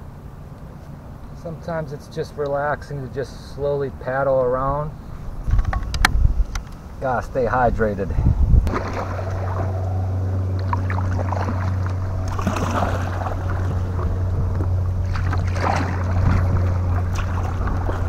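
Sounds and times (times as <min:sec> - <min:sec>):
steady low hum: 0:00.0 - 0:18.0
paddle splashing in water: 0:08.7 - 0:09.9, 0:10.6 - 0:18.0.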